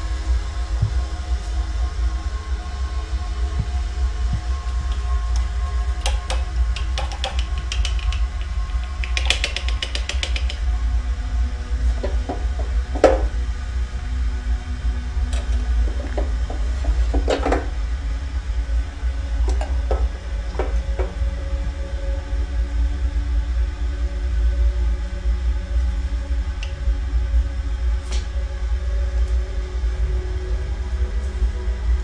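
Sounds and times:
low ambient drone: 0.0s - 32.0s
rattle of small clicks: 6.0s - 10.6s.

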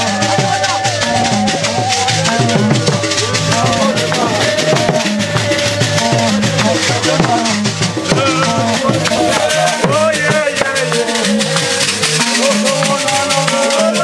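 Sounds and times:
group of voices singing: 0.0s - 14.0s
hand drum beating: 0.0s - 14.0s
rattles shaken: 0.0s - 14.0s.

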